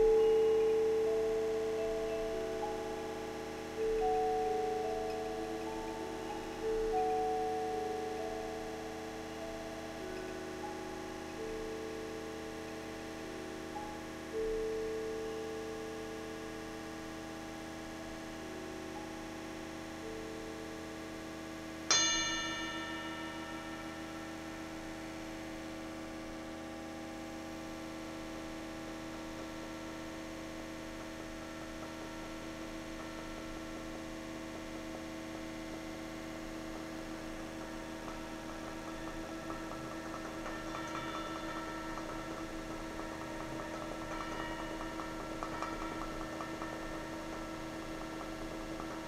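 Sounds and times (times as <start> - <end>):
sustained drone of held tones: 0.0 - 49.0
struck metal bell ringing: 21.9 - 25.0, 38.7 - 49.0.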